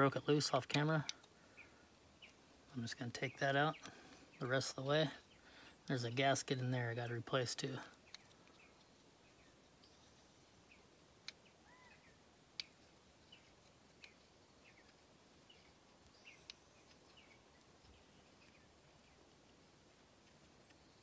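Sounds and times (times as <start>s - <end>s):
distant birds chirping: 0.0s - 21.0s
small sharp clicks: 0.6s - 1.4s, 7.9s - 8.9s, 11.2s - 11.5s, 12.5s - 15.0s, 16.0s - 19.1s.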